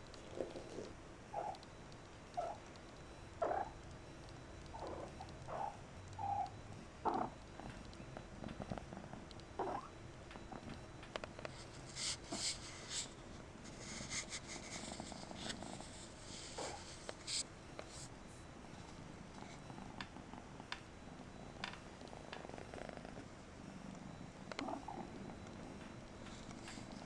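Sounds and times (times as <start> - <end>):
kitten purring: 0.1 - 1.6, 4.7 - 9.9, 19.3 - 27.0
scratchy rustles: 11.5 - 18.1.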